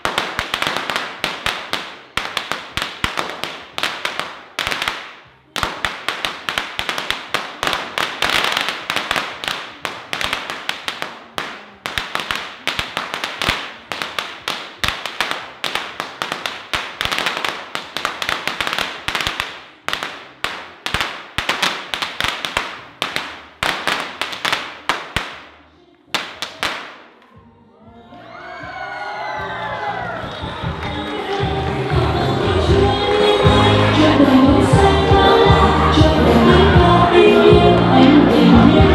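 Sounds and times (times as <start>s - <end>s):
firecrackers crackling: 0.0s - 27.2s, 29.6s - 38.9s.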